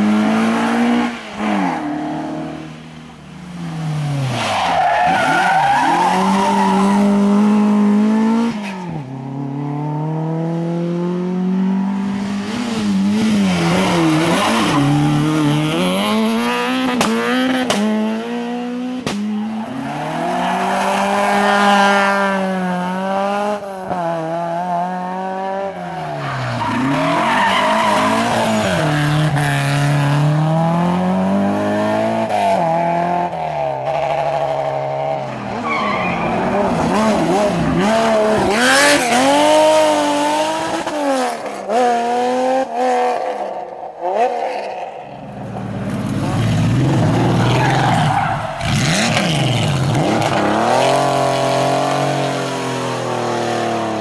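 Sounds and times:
rally car engines revving: 0.0s - 54.0s.

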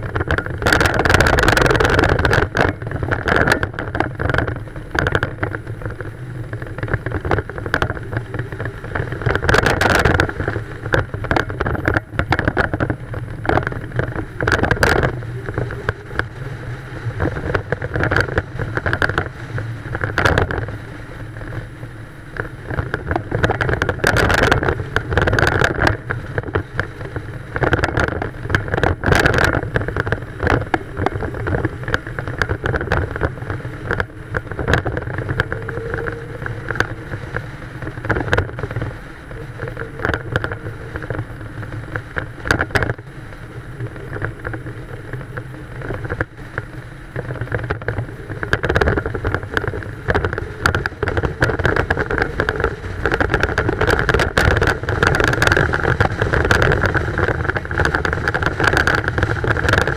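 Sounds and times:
car engine drone: 0.0s - 59.9s
road noise: 0.0s - 59.9s
wind: 0.0s - 59.9s.

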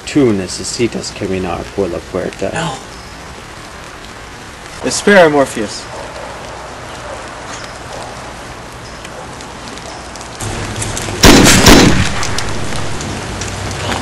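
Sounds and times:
steady background hiss: 0.0s - 14.0s
loud blast: 10.4s - 13.0s.

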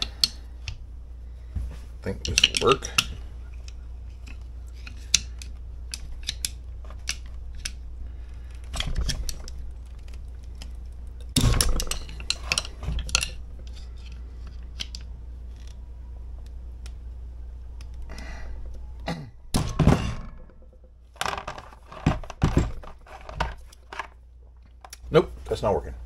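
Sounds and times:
metal scraping: 11.3s - 15.0s, 19.6s - 24.2s.

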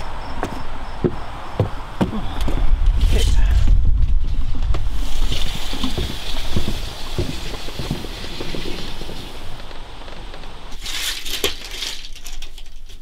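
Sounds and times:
footsteps on wooden boards: 0.0s - 3.0s, 3.7s - 10.8s
steady high hiss: 4.6s - 11.2s.

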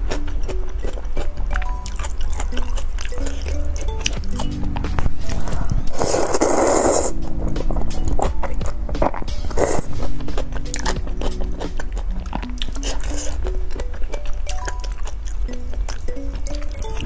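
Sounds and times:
background music: 0.0s - 17.0s
chewing with mouth smacks: 0.0s - 17.0s
slurping noodles: 5.2s - 7.2s, 9.5s - 13.4s.

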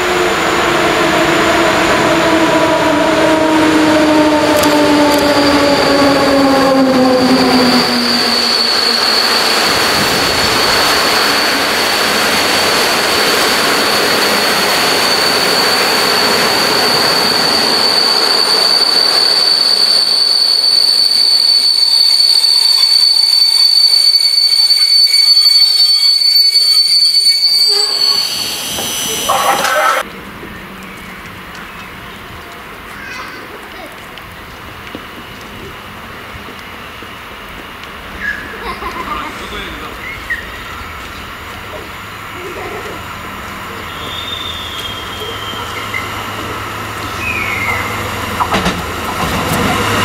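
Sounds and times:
locomotive hum: 0.0s - 50.0s
train coaches rolling by: 0.0s - 50.0s
high-pitched wheel squeal: 2.6s - 30.0s, 43.7s - 48.4s.

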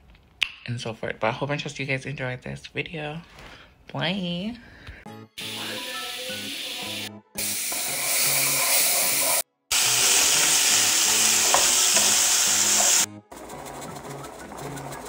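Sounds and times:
meat and potatoes sizzling in a pan: 5.4s - 13.1s.

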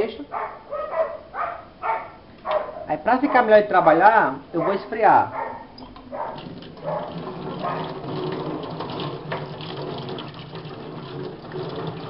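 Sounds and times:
tap water splashing into sink: 5.8s - 12.0s.

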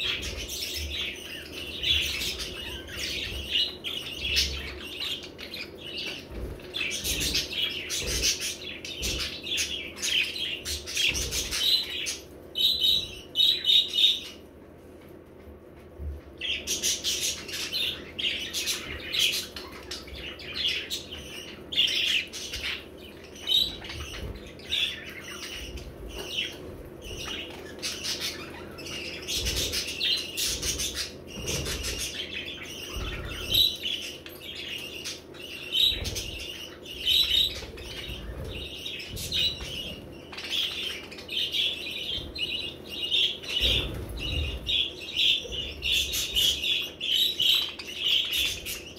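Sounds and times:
budgerigars chirping: 0.0s - 14.4s, 16.4s - 48.9s.

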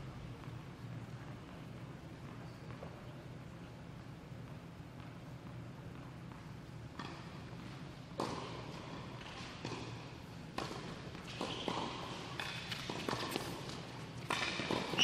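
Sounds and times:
tennis ball bouncing on court: 4.3s - 15.0s
tennis ball struck by racquets: 5.9s - 15.0s.

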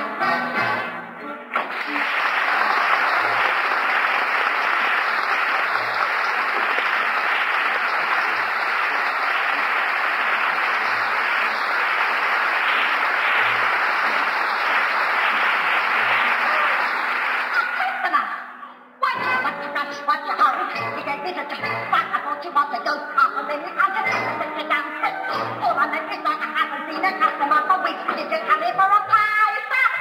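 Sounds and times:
audience applauding: 1.5s - 17.9s.

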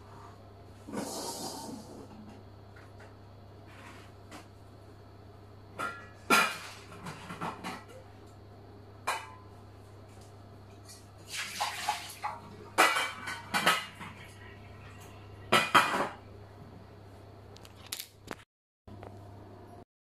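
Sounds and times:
pots and dishes clattering: 5.8s - 8.2s, 9.0s - 9.5s, 10.8s - 16.2s.

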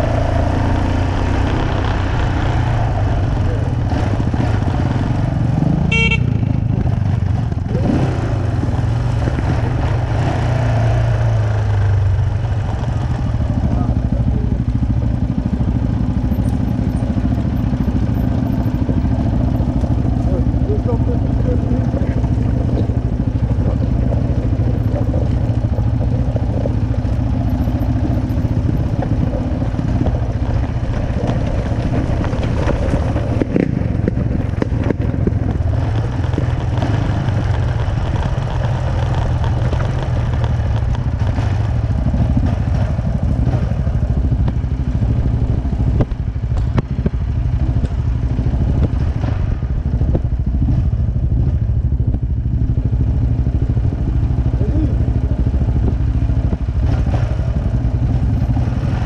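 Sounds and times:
quad engine running: 0.0s - 59.0s
second quad engine: 0.0s - 59.0s
clatter and knocks from stony trail: 21.8s - 52.2s, 55.7s - 59.0s.

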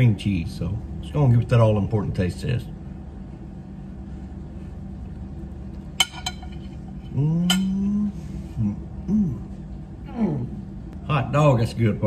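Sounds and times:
fork clinking: 5.9s - 7.8s
man humming mmm: 7.0s - 10.6s.

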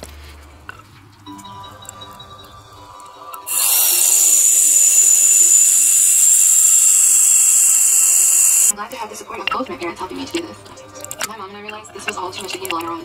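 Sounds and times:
bright whistling tone: 3.5s - 8.7s
loud high-pitched hiss: 3.5s - 8.7s.

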